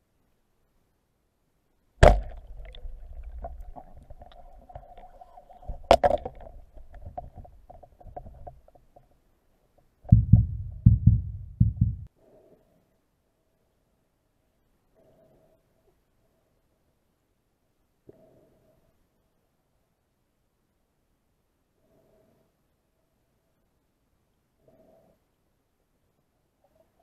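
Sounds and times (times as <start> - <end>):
low thumps: 2.0 - 5.0, 10.1 - 12.1
speargun crack underwater: 2.0 - 9.1.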